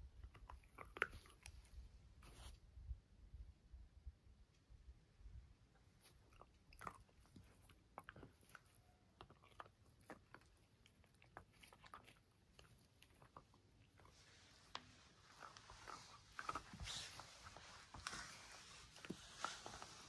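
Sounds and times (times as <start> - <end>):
dog gnawing on a chew: 0.0 - 1.8, 5.8 - 20.0.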